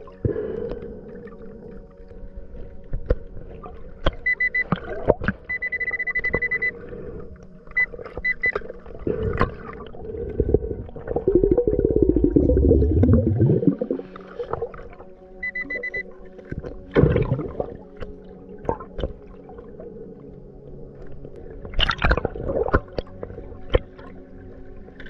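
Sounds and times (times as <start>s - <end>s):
metal detector beeping: 4.2s - 4.8s, 5.5s - 6.8s, 7.7s - 8.6s, 15.4s - 16.1s
gurgling rush of bubbles: 8.9s - 15.1s, 16.9s - 18.0s, 21.7s - 24.1s
muffled underwater clicks and knocks: 18.0s - 19.2s, 21.0s - 24.2s.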